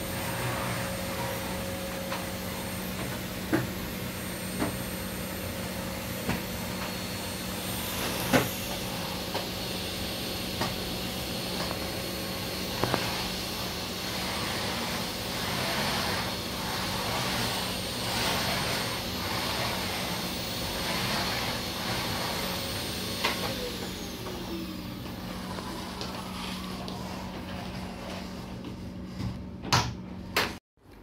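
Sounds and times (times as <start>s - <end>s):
vacuum cleaner running: 0.0s - 30.6s.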